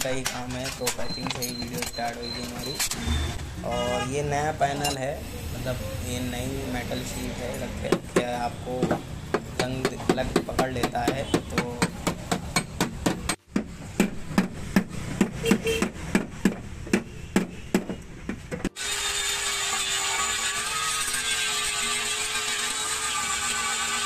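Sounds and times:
angle grinder on metal: 0:18.8 - 0:24.0.

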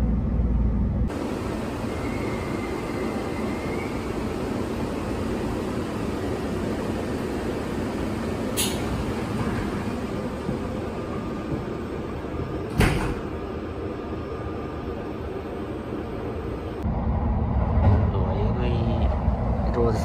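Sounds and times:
stopped train humming: 0:00.0 - 0:20.0
train running rumble: 0:00.0 - 0:20.0
train door closing thump: 0:12.4 - 0:13.4.

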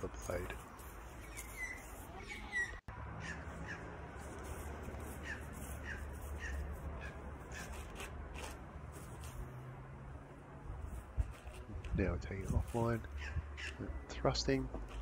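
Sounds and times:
bird calling: 0:01.2 - 0:03.9.

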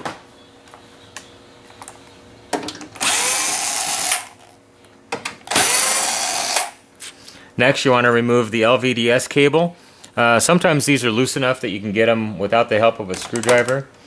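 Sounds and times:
cordless drill whine: 0:03.0 - 0:04.5, 0:05.5 - 0:06.8.

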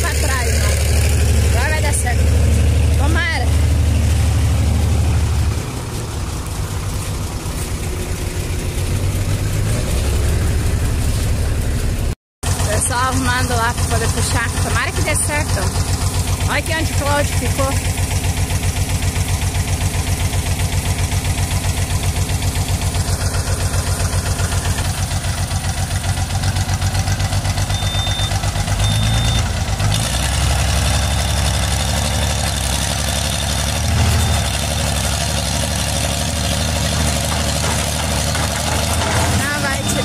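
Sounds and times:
heavy diesel engines running: 0:00.0 - 0:40.0.

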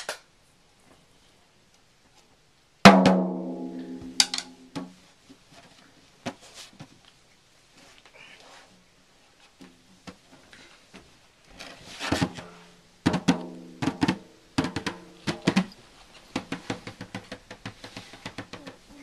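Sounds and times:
snare drum hits: 0:02.9 - 0:04.9, 0:13.1 - 0:15.8.

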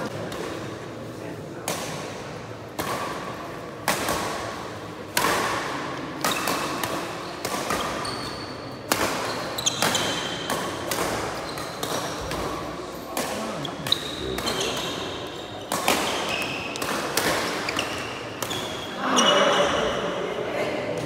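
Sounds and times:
rackets striking shuttlecock: 0:02.8 - 0:18.8
shoe squeaks on court floor: 0:07.3 - 0:08.6, 0:09.2 - 0:10.5, 0:11.4 - 0:11.8, 0:13.6 - 0:16.8.

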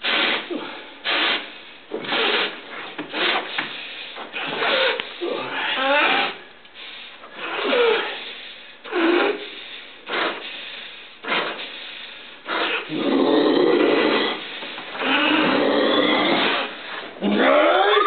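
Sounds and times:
dog blowing through nose: 0:00.0 - 0:05.0, 0:08.9 - 0:13.2
dog growling: 0:12.5 - 0:14.4, 0:15.0 - 0:18.0.

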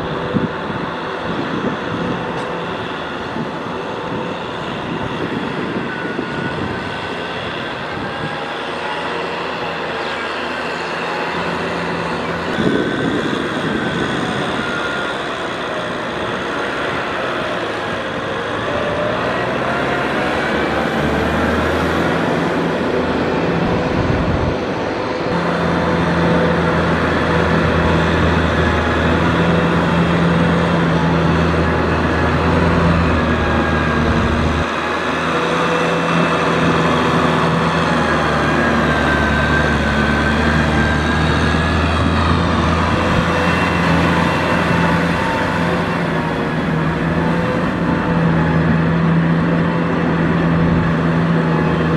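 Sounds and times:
tractor diesel engine running: 0:00.0 - 0:51.9.

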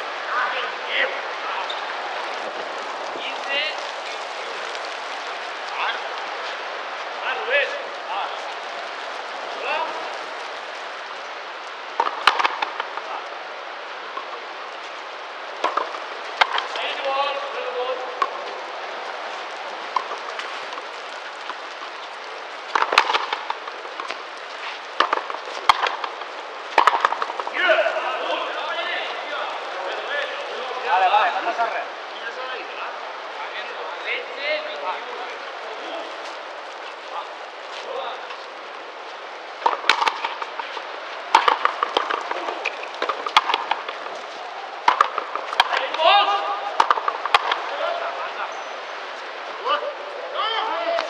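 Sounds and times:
steady hiss: 0:00.0 - 0:51.0
ball cracking off racquets and wall: 0:11.9 - 0:13.1, 0:15.6 - 0:17.4, 0:18.1 - 0:28.0, 0:39.6 - 0:48.0
ball hitting wall: 0:22.7 - 0:24.1, 0:26.8 - 0:27.6, 0:39.6 - 0:40.5, 0:41.3 - 0:44.0, 0:44.8 - 0:46.0, 0:46.8 - 0:47.6
rubber ball struck by racquets: 0:22.8 - 0:24.1, 0:25.0 - 0:27.5, 0:39.6 - 0:40.4, 0:41.4 - 0:44.0, 0:44.8 - 0:46.0, 0:46.8 - 0:47.6.

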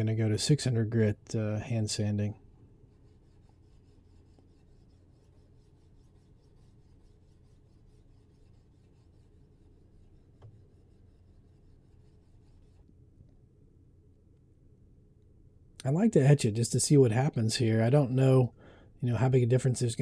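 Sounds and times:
sandpaper rubbing on metal blade: 0:03.1 - 0:12.8.

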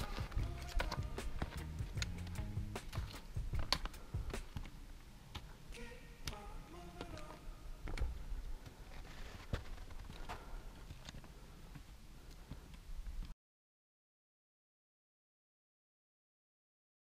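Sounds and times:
footsteps on rocky ground: 0:00.0 - 0:05.6, 0:06.2 - 0:13.3
trekking poles tapping on rock: 0:00.0 - 0:05.6.

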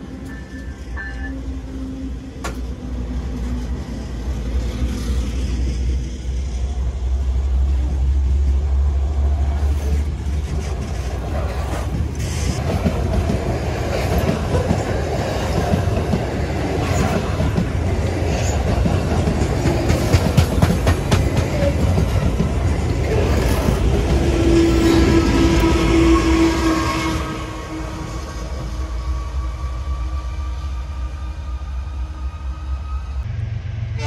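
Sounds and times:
locomotive horn blast: 0:24.1 - 0:33.2.

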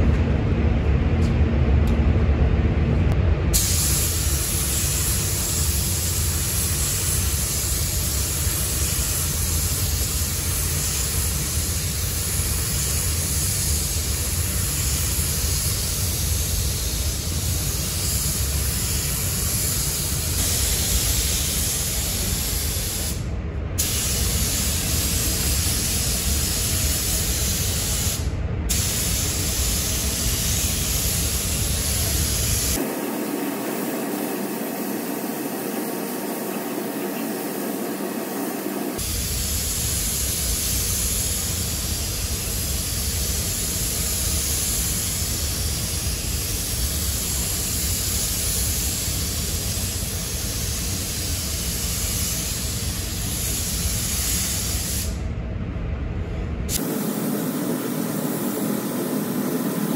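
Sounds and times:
low rumble: 0:00.0 - 0:03.6
spray gun hissing: 0:03.6 - 0:23.2, 0:23.8 - 0:55.2, 0:56.7 - 0:59.9.

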